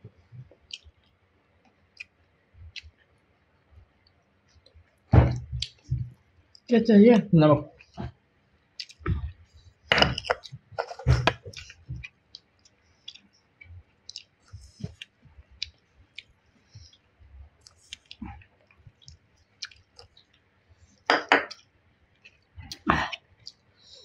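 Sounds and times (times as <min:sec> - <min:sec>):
person chewing food: 0:00.2 - 0:01.1, 0:01.9 - 0:03.0, 0:04.0 - 0:06.7, 0:08.8 - 0:23.7
wet mouth clicks: 0:08.8 - 0:09.3, 0:14.1 - 0:17.0, 0:19.0 - 0:20.2.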